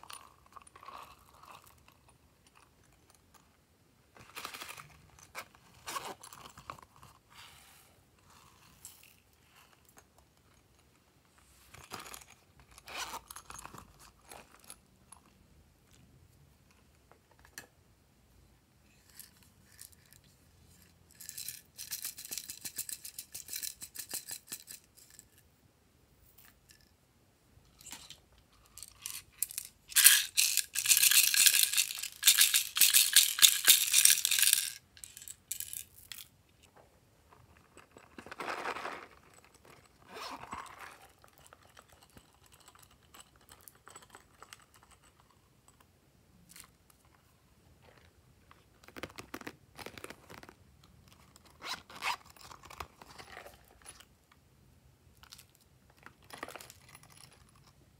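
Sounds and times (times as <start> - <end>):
beads rattling into a tray: 27.8 - 36.3.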